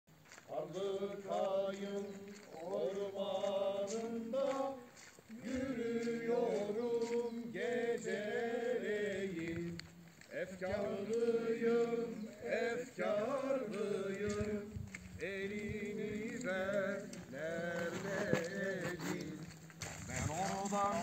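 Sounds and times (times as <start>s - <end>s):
man singing slow melody: 0.4s - 21.0s.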